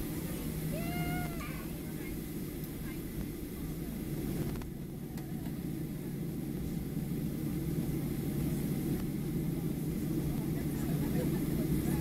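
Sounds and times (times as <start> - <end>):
jet engine cabin rumble: 0.0 - 12.0.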